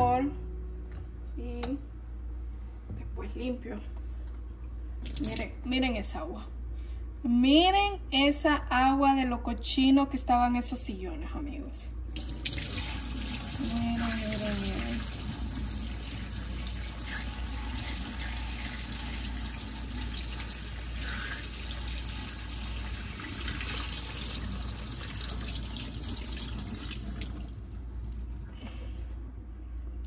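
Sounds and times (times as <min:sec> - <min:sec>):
water pouring and splashing: 0:05.0 - 0:05.5, 0:12.1 - 0:28.2.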